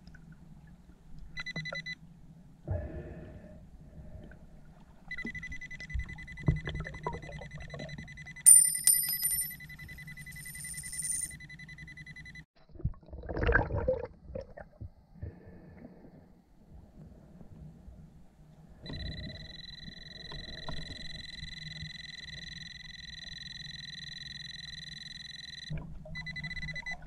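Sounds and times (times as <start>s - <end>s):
metal detector target tone: 8.5s - 11.4s.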